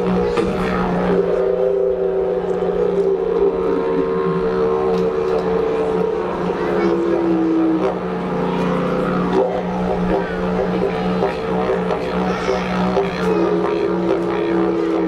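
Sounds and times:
didgeridoo drone: 0.0s - 15.0s
higher held didgeridoo tone: 0.0s - 15.0s.

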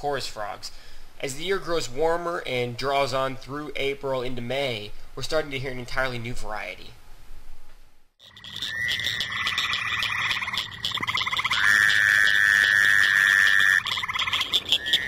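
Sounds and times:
pulsing frog chorus: 8.2s - 15.0s
toads buzzing calls: 8.2s - 15.0s.

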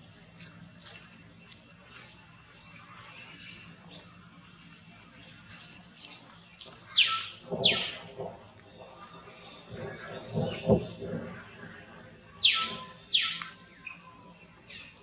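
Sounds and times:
birds chirping: 0.0s - 15.0s
downward-sweeping bird calls: 5.6s - 15.0s.

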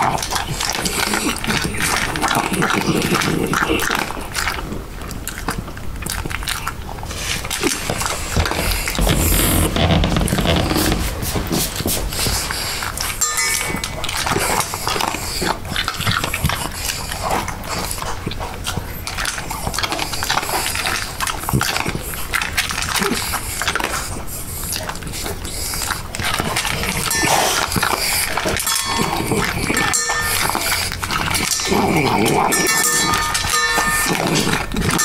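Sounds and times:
dog chewing and crunching food: 0.0s - 35.0s.

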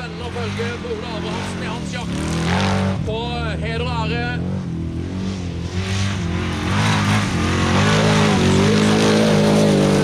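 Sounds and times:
car engine revving hard: 0.0s - 3.2s, 4.2s - 10.0s.

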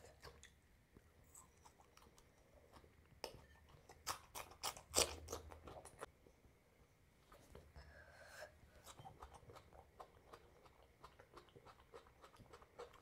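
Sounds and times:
chewing and wet mouth sounds: 0.0s - 6.1s, 8.7s - 13.0s.

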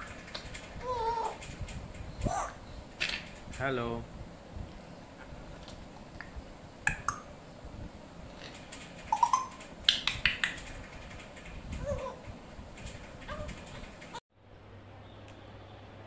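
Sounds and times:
parrots making sharp clicks: 9.1s - 10.6s.

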